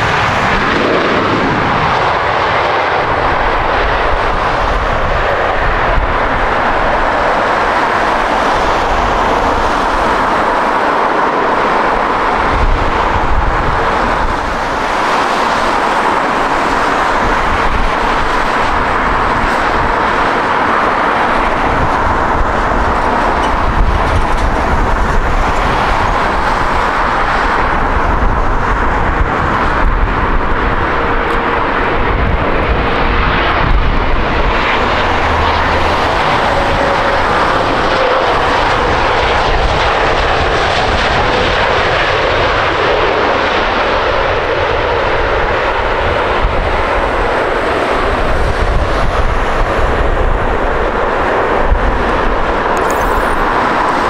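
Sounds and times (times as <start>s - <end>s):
jet engines roaring: 0.0s - 54.0s
low rumble: 27.8s - 40.6s.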